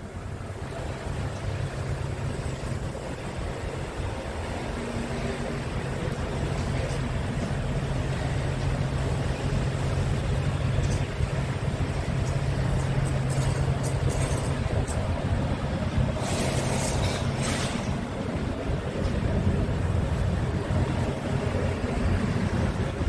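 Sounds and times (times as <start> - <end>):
diesel engine idling: 0.0 - 23.0
short hiss: 16.2 - 18.0.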